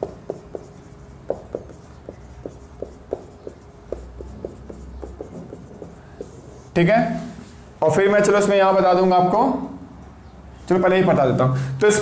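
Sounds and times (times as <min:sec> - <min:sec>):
marker writing on whiteboard: 0:00.0 - 0:06.8.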